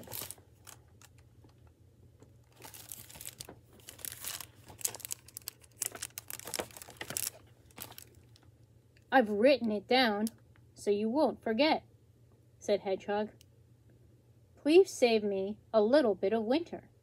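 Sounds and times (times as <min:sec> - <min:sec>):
plastic book jacket crinkling: 0:00.0 - 0:01.5, 0:02.2 - 0:08.5.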